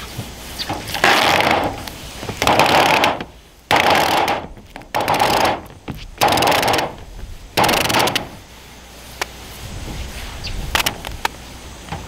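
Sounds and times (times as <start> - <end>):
tape peeling off roll: 0.0 - 8.4.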